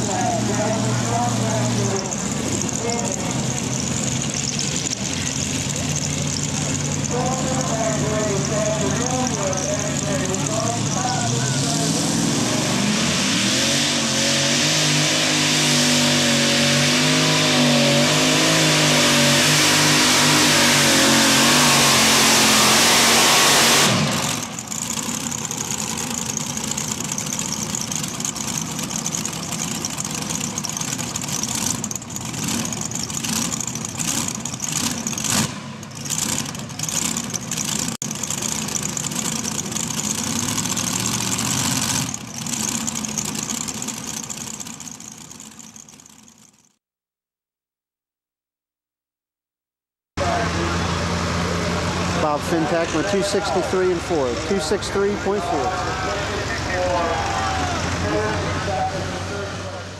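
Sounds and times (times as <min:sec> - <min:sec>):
low engine rumble: 0:00.0 - 0:13.2, 0:23.8 - 0:46.6, 0:50.2 - 0:59.9
tractor engines roaring: 0:00.0 - 0:46.6, 0:50.2 - 0:59.9.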